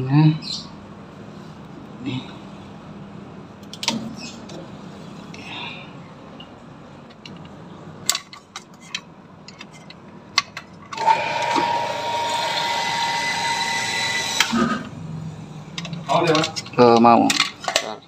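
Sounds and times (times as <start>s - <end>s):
electric water pump whining: 11.0s - 14.9s.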